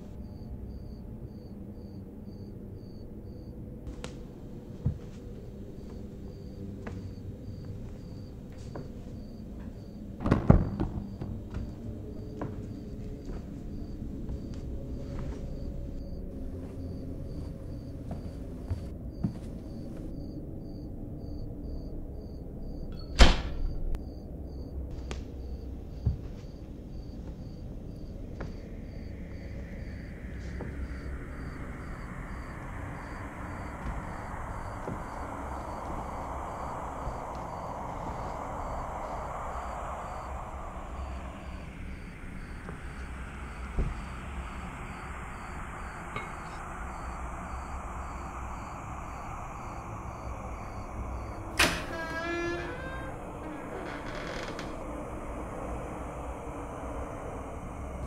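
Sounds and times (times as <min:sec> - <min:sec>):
crickets chirping: 0:00.0 - 0:58.0
low steady rumble: 0:23.9 - 0:58.0
hiss: 0:28.6 - 0:58.0.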